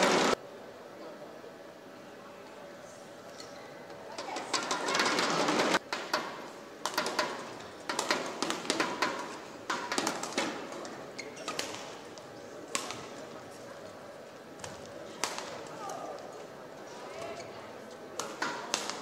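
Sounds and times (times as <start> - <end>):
crowd noise: 0.0 - 19.0
hall background noise: 0.0 - 19.0
rackets hitting shuttlecock: 5.8 - 13.4, 14.6 - 16.4, 17.2 - 19.0.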